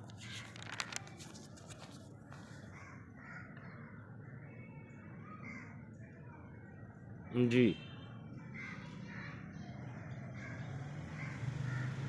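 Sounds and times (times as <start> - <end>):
book pages rustling: 0.0 - 2.8
distant birds calling: 2.5 - 5.9, 8.4 - 12.0.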